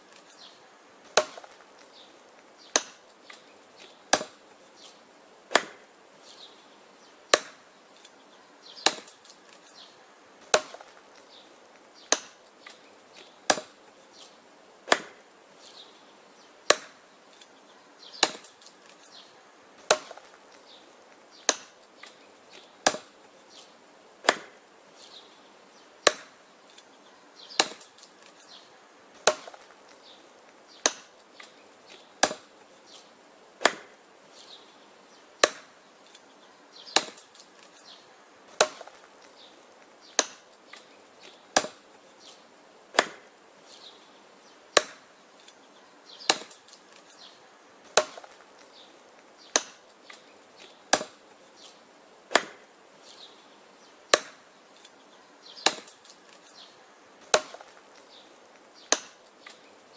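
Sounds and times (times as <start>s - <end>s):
hatchet chopping wood: 1.0s - 1.9s, 2.6s - 4.5s, 5.5s - 5.9s, 7.3s - 7.7s, 8.8s - 9.6s, 10.4s - 11.2s, 12.0s - 13.8s, 14.8s - 15.2s, 16.6s - 17.5s, 18.2s - 19.2s, 19.8s - 23.2s, 24.2s - 24.6s, 26.0s - 26.8s, 27.5s - 28.5s, 29.2s - 30.0s, 30.7s - 32.6s, 33.6s - 34.0s, 35.4s - 36.2s, 36.9s - 41.9s, 42.9s - 43.3s, 44.7s - 45.6s, 46.2s - 47.2s, 47.8s - 48.7s, 49.4s - 51.3s, 52.3s - 52.7s, 54.1s - 54.9s, 55.6s - 56.6s, 57.2s - 58.1s, 58.8s - 59.6s.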